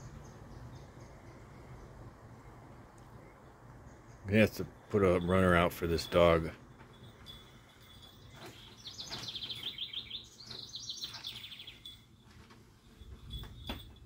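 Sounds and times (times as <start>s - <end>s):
songbird trilling: 8.2s - 12.0s.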